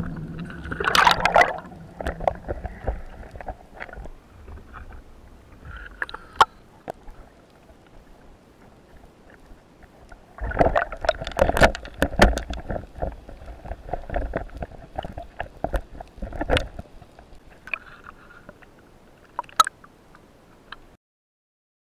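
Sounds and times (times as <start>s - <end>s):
underwater bubbling: 0.0s - 20.8s
water rushing: 0.0s - 20.8s.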